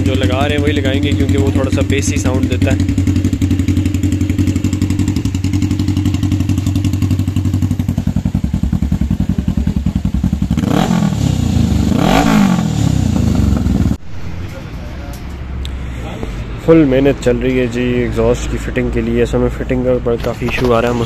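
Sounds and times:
motorcycle engine idling: 0:00.0 - 0:14.0
engine revving: 0:10.3 - 0:14.0.

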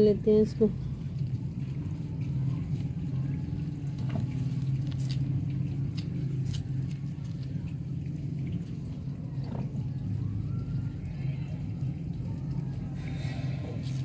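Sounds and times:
low hum: 0:00.0 - 0:14.0
hands digging in wet soil: 0:04.0 - 0:07.6.

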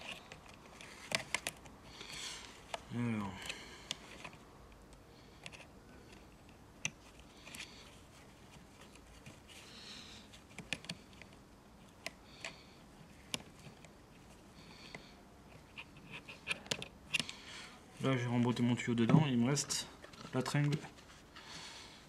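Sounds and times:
small clicks and rustles: 0:00.0 - 0:17.4.

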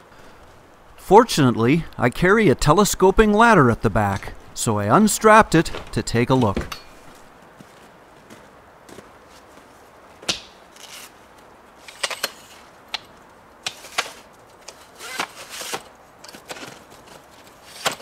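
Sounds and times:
ladder sections latching clicks: 0:05.5 - 0:07.2, 0:11.8 - 0:18.0.

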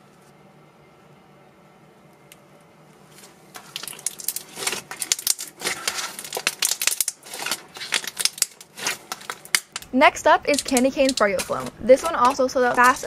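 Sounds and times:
slime squelching and popping: 0:03.6 - 0:13.0.

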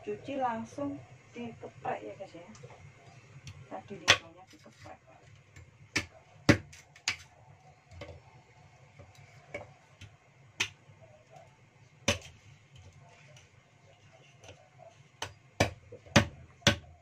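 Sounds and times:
cleaver chopping on wooden block: 0:05.9 - 0:07.2, 0:12.1 - 0:12.3, 0:15.2 - 0:16.9.

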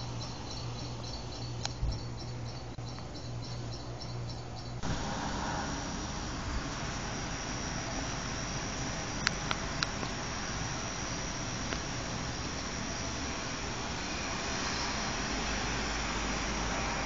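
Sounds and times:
small clicks: 0:09.2 - 0:10.2.

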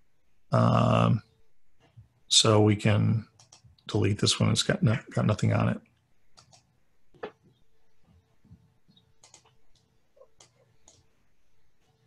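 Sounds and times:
faint steady hum: 0:00.0 - 0:12.0
computer mouse clicks: 0:03.4 - 0:03.8, 0:06.3 - 0:07.5, 0:08.9 - 0:11.2.

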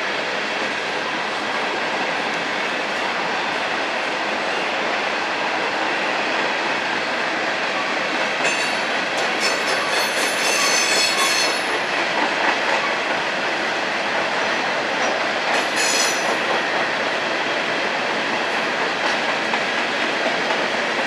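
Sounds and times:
train wheels rumbling on rails: 0:00.0 - 0:21.0
high-pitched wheel squeal: 0:10.0 - 0:11.6.

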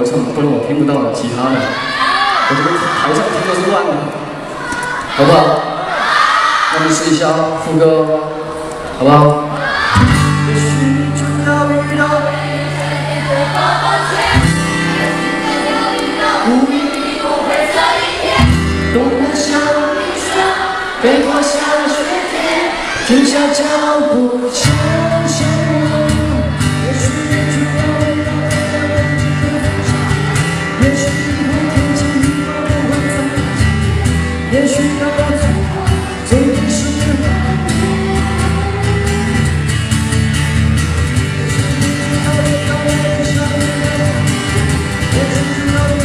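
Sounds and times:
guitar: 0:00.0 - 0:46.0
man singing: 0:09.0 - 0:12.7, 0:16.3 - 0:17.1, 0:18.8 - 0:22.3, 0:23.0 - 0:39.6, 0:41.2 - 0:46.0.

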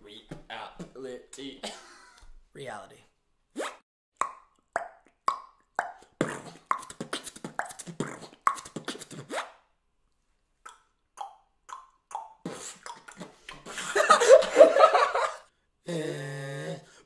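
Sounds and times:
beatboxed ticking clicks: 0:04.2 - 0:09.2.

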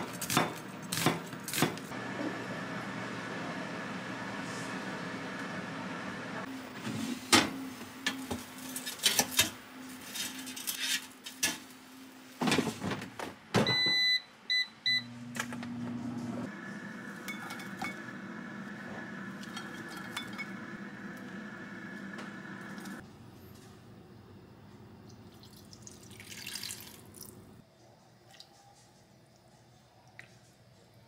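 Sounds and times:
appliance running: 0:00.0 - 0:10.6, 0:14.9 - 0:25.0
appliance buttons beeping: 0:13.6 - 0:15.6.

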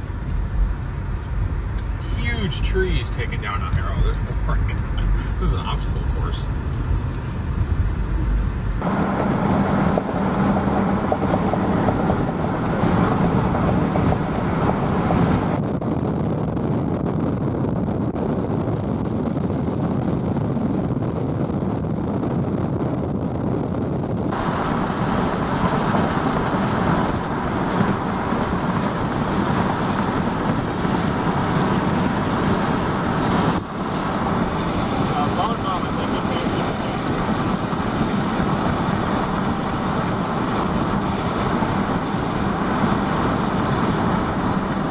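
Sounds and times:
wind noise: 0:00.0 - 0:44.9
rain: 0:24.3 - 0:44.9
tyre spray on wet road: 0:24.4 - 0:44.9.

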